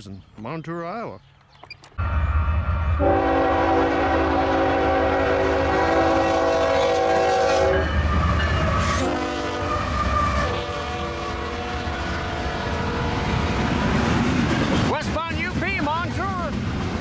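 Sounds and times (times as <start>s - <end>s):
diesel locomotive rumble: 2.0s - 17.0s
locomotive air horn chord: 3.0s - 7.9s, 8.8s - 13.3s.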